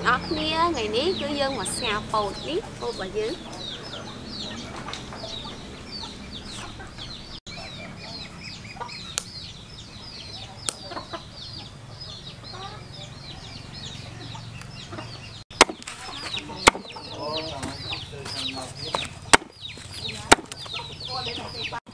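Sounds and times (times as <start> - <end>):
chicks peeping: 0.0 - 21.9
cleaver striking cutting board: 15.6 - 15.9, 16.6 - 16.9, 19.3 - 19.5, 20.3 - 20.6.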